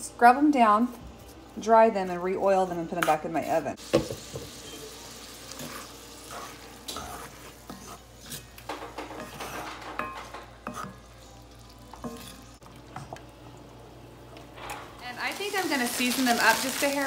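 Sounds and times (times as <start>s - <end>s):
beans sizzling: 3.8s - 17.0s
wooden spoon scraping a pan: 5.5s - 11.0s.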